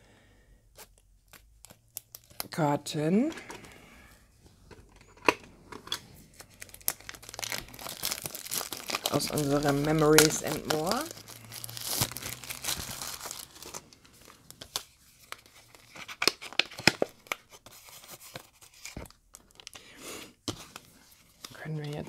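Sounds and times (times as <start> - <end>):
plastic wrapping being torn and crinkling: 0.8 - 2.6, 6.3 - 19.8.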